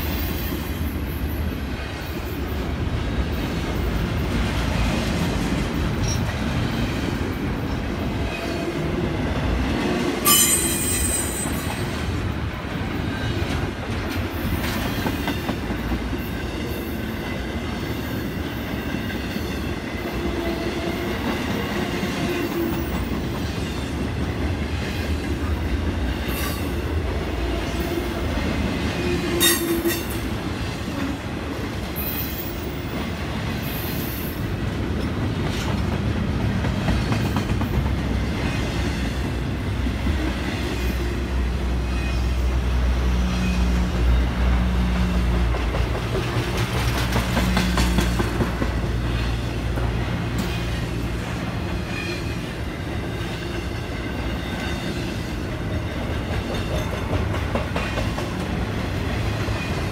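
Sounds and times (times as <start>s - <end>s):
train wheels rumbling and clattering: 0.0s - 59.9s
high wheel squeals: 10.2s - 11.7s.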